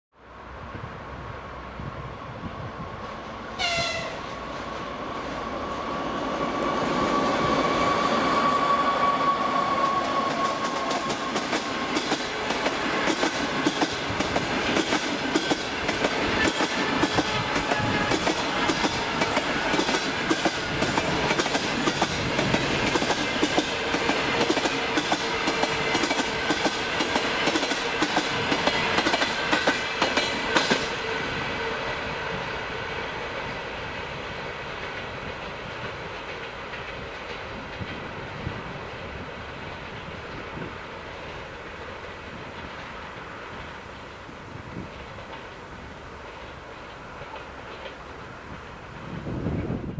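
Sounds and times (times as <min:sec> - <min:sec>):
train coaches rolling past: 0:00.2 - 0:49.9
wheels clicking over rail joints: 0:09.8 - 0:31.2, 0:33.3 - 0:49.8.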